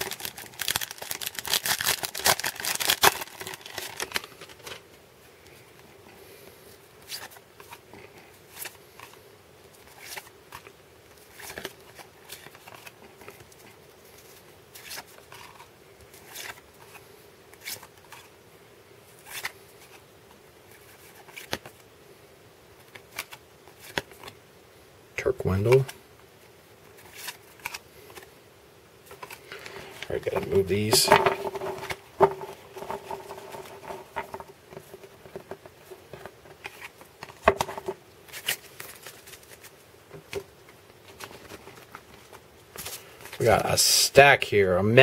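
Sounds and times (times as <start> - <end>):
wrapper tearing and crackling: 0.0 - 4.8.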